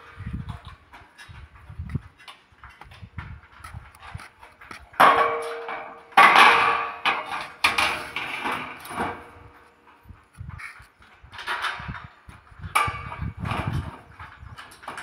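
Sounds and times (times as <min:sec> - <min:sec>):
steel channels clanging: 0:04.9 - 0:10.6, 0:11.3 - 0:15.0.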